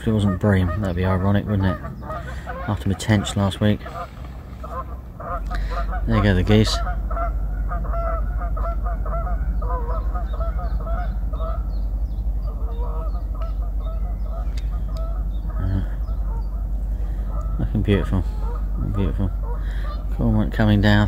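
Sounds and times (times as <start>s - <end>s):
geese honking: 0.0s - 21.0s.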